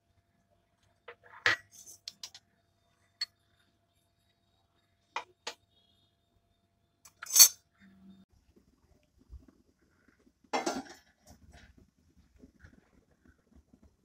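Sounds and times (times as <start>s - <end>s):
spoon scraping a metal cup: 1.5s - 2.3s, 7.1s - 7.6s.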